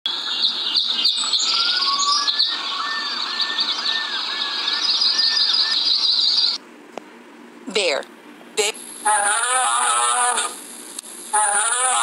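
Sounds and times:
birds chirping chorus: 0:00.2 - 0:06.6.

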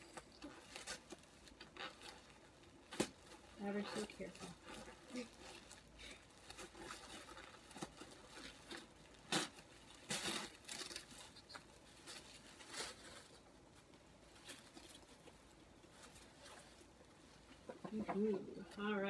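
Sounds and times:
paper tearing and rustling: 0:00.0 - 0:13.4.

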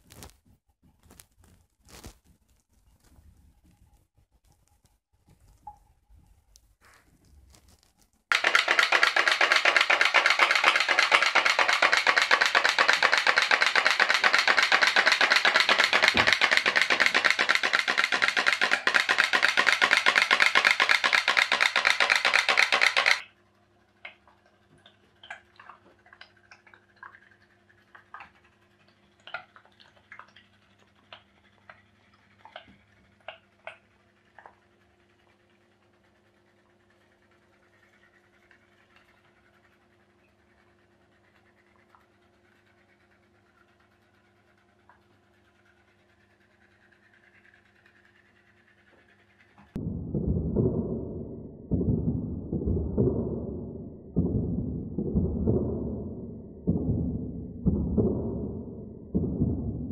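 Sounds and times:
pop-pop boat engine popping: 0:08.3 - 0:23.2.

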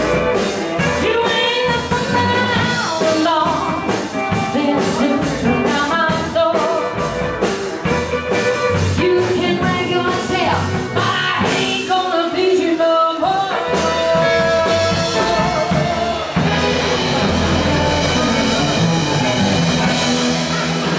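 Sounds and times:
rock and roll band playing: 0:00.0 - 0:20.9
woman singing: 0:00.8 - 0:07.2, 0:08.8 - 0:16.2
saxophones: 0:13.4 - 0:20.9.

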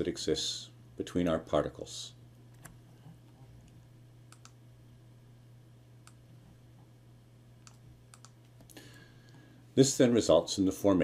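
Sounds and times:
steady low hum: 0:00.0 - 0:11.0
keyboard and mouse clicks: 0:04.3 - 0:04.6, 0:07.6 - 0:08.4.

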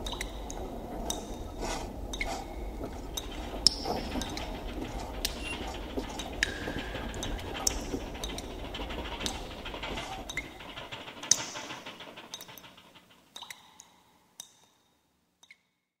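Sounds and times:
low rumble: 0:00.0 - 0:11.2.

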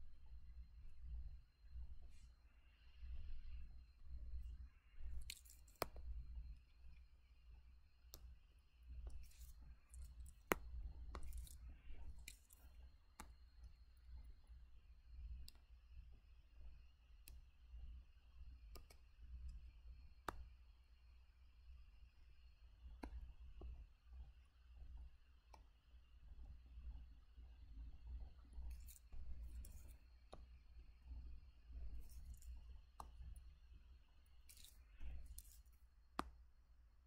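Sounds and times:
low steady hum: 0:00.0 - 0:37.0
sharp mouse clicks: 0:28.6 - 0:30.0.

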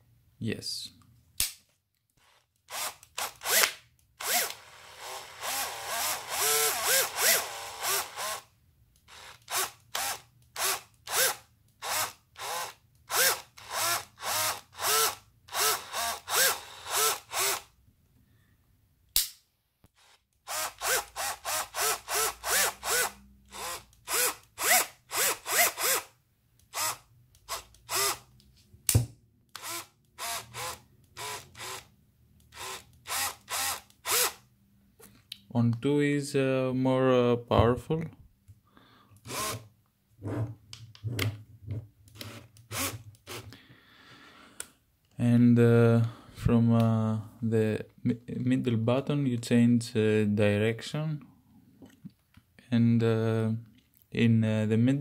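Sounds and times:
cordless drill whirring: 0:02.2 - 0:17.7, 0:20.0 - 0:28.3, 0:29.5 - 0:34.4, 0:39.2 - 0:39.7, 0:42.1 - 0:43.6.

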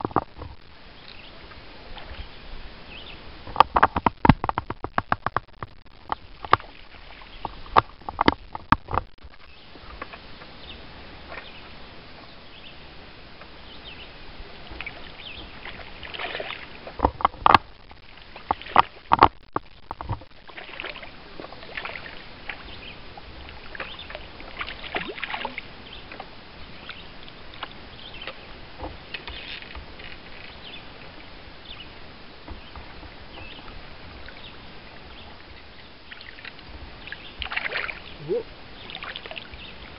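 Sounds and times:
fish splashing in water: 0:14.8 - 0:22.8, 0:23.5 - 0:25.7, 0:37.1 - 0:39.7.

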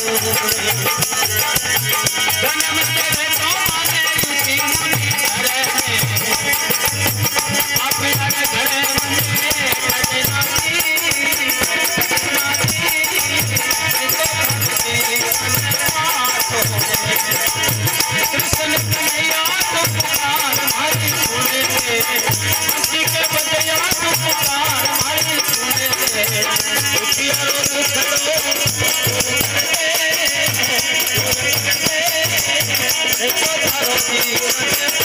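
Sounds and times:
dholak drum beat: 0:00.0 - 0:35.0
harmonium melody: 0:00.0 - 0:35.0
jingling hand percussion: 0:00.0 - 0:35.0.

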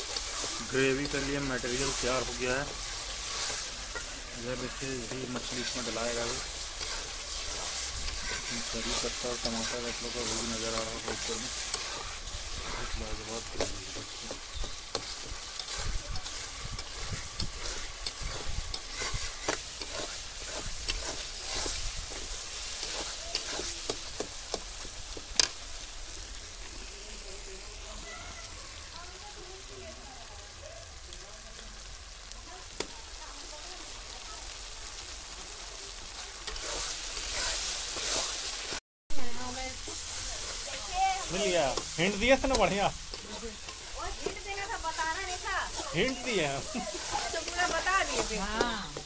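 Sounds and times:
spatula scraping a pan: 0:00.0 - 0:25.4, 0:36.1 - 0:38.8, 0:39.5 - 0:49.0
masala sizzling: 0:00.0 - 0:49.0.

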